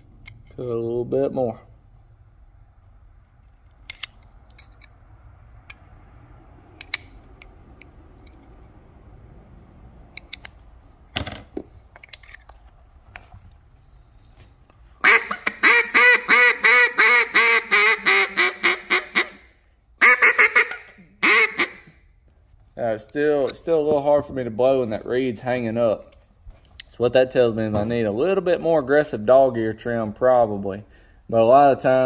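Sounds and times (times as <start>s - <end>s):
duck call handling clicks: 15.0s - 19.4s, 20.0s - 22.0s
duck call quacks: 15.0s - 22.0s.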